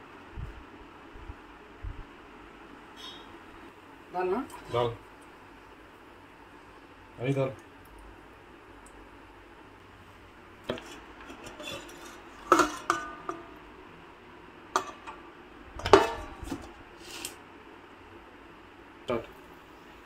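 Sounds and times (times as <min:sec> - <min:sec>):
dishes and utensils clattering: 0:10.7 - 0:13.7, 0:14.8 - 0:17.3.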